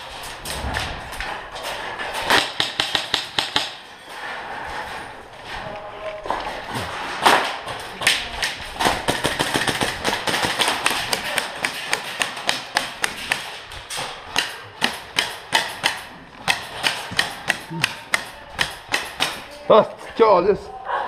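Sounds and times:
airsoft guns firing: 2.2 - 3.8, 7.2 - 19.6.

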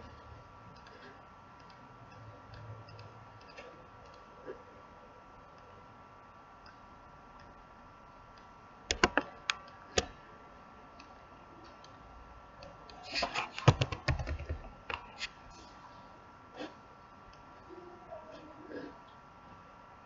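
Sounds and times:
keyboard typing: 13.1 - 15.2.

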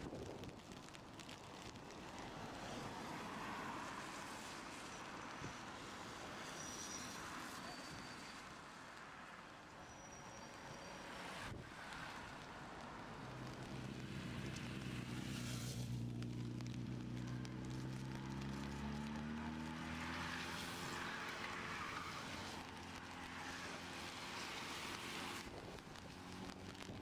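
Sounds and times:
tyres hissing on wet road: 0.2 - 27.0
car engine passing: 10.9 - 25.5.

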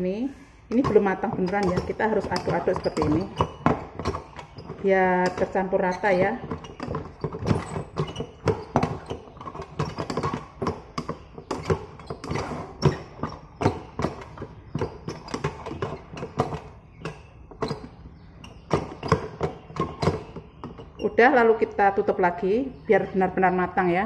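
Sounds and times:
paddle scraping rice pot: 0.7 - 21.2.

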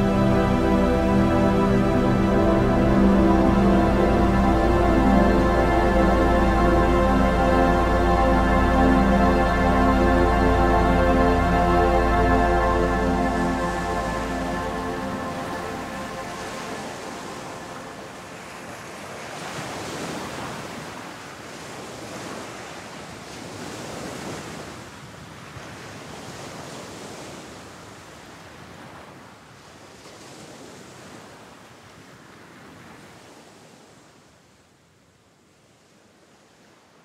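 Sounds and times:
sea noise: 0.0 - 24.9
wind: 0.0 - 37.0.

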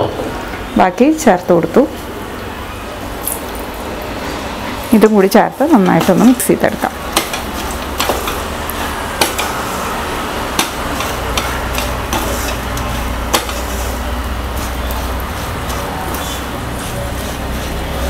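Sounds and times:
spatula knocking on pan: 7.1 - 8.4
spatula scraping steel pan: 10.6 - 18.0.

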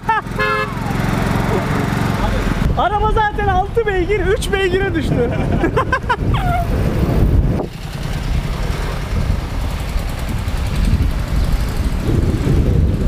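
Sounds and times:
car engine running: 0.0 - 2.8, 6.8 - 13.0
wind rumble on microphone: 1.8 - 13.0.

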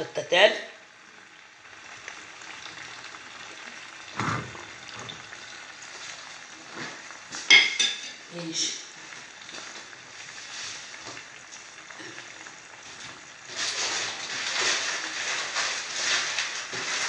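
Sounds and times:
food sizzling in oil: 0.0 - 17.0
ladle stirring in pot: 9.0 - 17.0.

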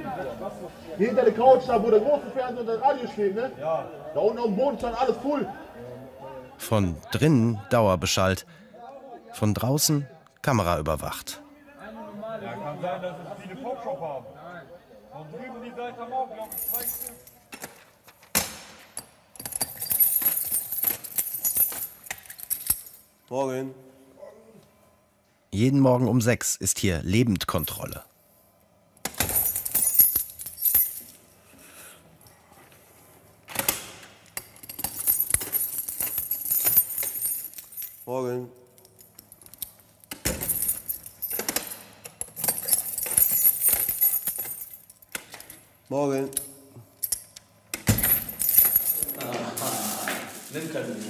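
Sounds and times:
keys jangling in a lock: 16.5 - 23.1, 29.0 - 31.2, 33.5 - 49.2.

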